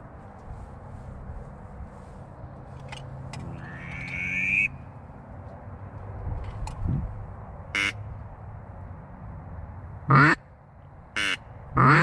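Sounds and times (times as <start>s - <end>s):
duck quacking: 3.6s - 4.8s, 7.8s - 8.0s, 10.1s - 10.4s, 11.2s - 12.0s.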